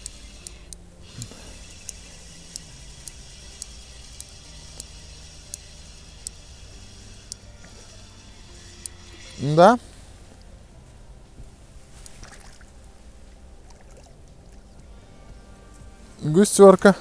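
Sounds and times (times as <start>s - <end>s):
fishing reel clicking: 0.0s - 9.8s
faint low hum: 0.0s - 17.0s.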